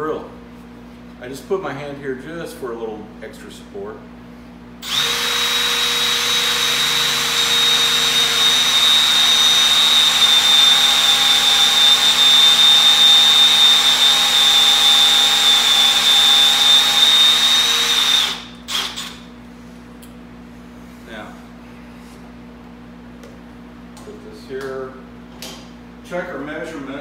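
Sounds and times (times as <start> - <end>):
power drill whining into wood: 4.8 - 19.2.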